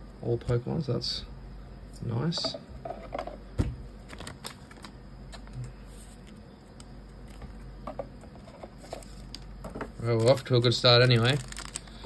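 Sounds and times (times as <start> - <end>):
low steady hum: 0.0 - 12.0
trading cards clicking and rustling: 4.0 - 12.0.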